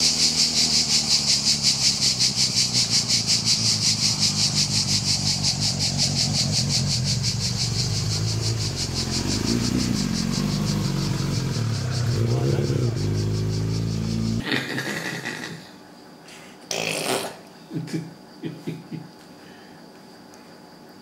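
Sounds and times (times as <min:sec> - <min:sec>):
motorcycle engine running: 0:00.0 - 0:14.4
high pulsing insect chorus: 0:00.0 - 0:21.0.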